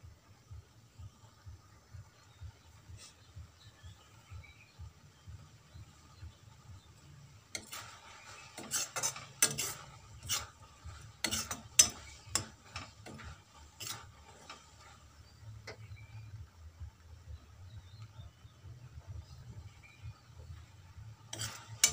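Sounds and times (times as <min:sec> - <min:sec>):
metal spoon scraping a pan: 0:07.1 - 0:16.1, 0:19.8 - 0:21.9.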